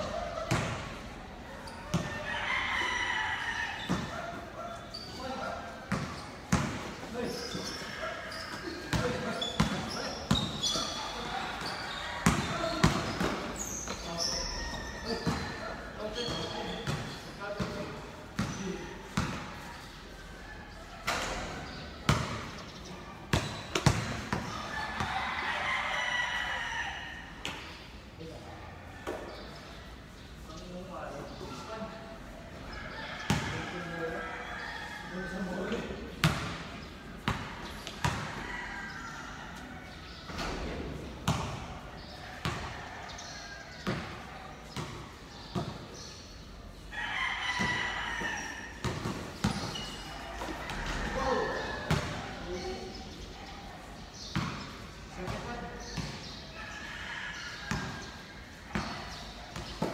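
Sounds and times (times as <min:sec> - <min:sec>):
basketball bouncing on concrete: 0:00.4 - 0:00.8, 0:01.9 - 0:02.2, 0:05.9 - 0:07.0, 0:08.8 - 0:10.9, 0:12.2 - 0:14.0, 0:16.2 - 0:19.6, 0:21.6 - 0:22.6, 0:23.3 - 0:25.2, 0:33.3 - 0:33.5, 0:36.2 - 0:38.4, 0:41.2 - 0:41.7, 0:42.4 - 0:42.8, 0:43.8 - 0:46.1, 0:47.6 - 0:51.0, 0:51.8 - 0:52.3, 0:54.2 - 0:56.4, 0:57.6 - 0:58.1, 0:58.7 - 0:59.9
rooster crowing: 0:01.9 - 0:04.2, 0:24.6 - 0:27.4, 0:32.7 - 0:35.8, 0:46.9 - 0:49.0, 0:49.7 - 0:52.0.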